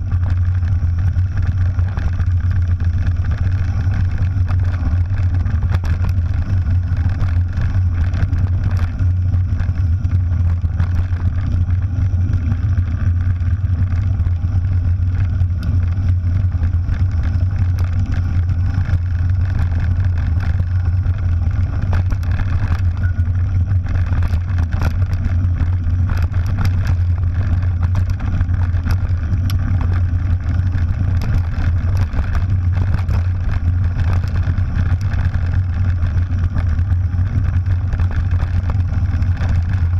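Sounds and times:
bike rattles and clicks: 0.0 - 39.9.

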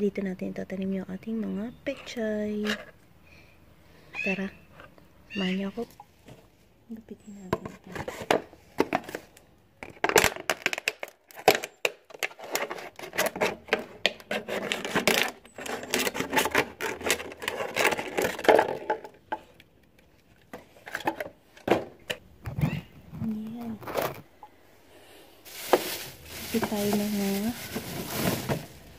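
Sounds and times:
scissors cutting plastic bottle: 10.2 - 18.8.

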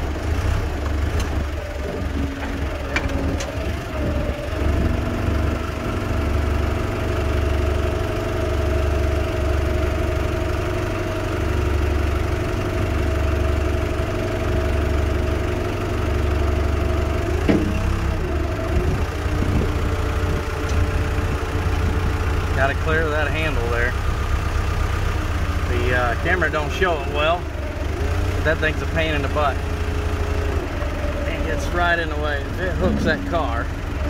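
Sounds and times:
hydraulic whine: 0.0 - 6.4, 17.1 - 23.7, 26.1 - 34.0
forklift engine running: 0.0 - 34.0.

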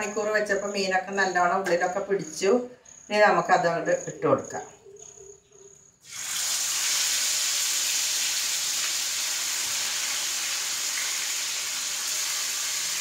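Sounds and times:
fish sizzling in hot oil: 6.0 - 13.0.

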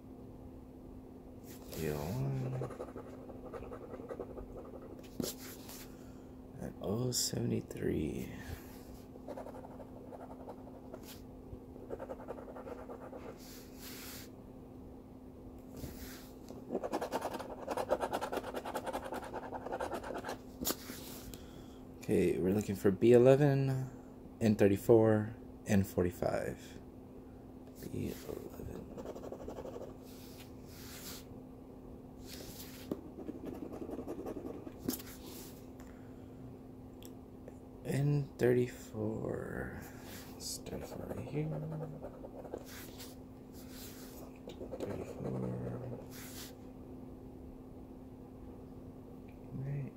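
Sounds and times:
scratching lottery ticket: 1.7 - 5.4, 16.7 - 20.4, 28.0 - 30.0, 32.4 - 35.0, 40.6 - 43.1, 43.7 - 46.5.

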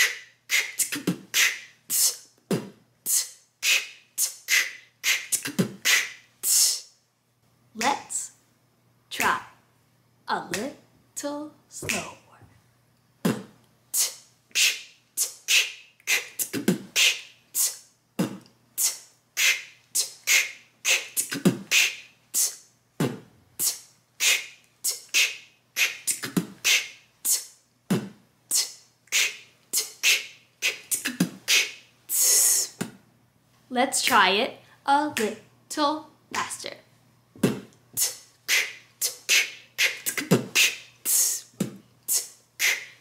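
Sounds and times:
woman beatboxing: 0.0 - 6.9, 7.8 - 8.4, 9.2 - 9.6, 10.4 - 10.8, 11.8 - 12.4, 13.2 - 32.9, 35.0 - 35.4, 36.3 - 36.8, 37.4 - 43.0
beatbox hiss: 0.0 - 7.0, 11.8 - 12.4, 13.2 - 32.9, 37.4 - 43.0.

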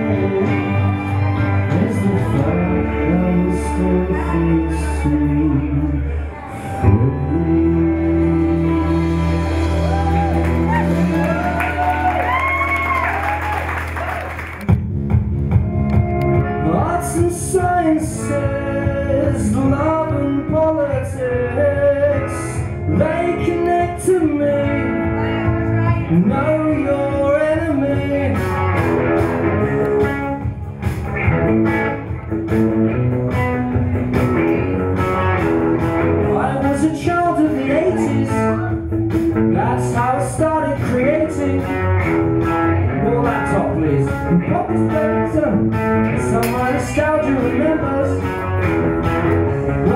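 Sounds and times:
blues-rock electric guitar: 0.0 - 13.0, 14.6 - 49.9.

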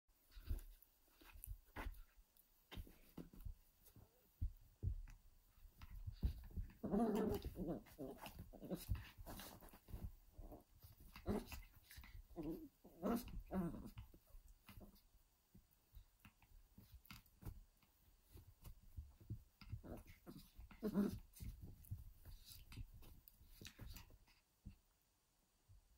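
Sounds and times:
soft thumps and rustling: 0.2 - 24.8
puppies growling: 5.8 - 14.9, 19.2 - 24.1.

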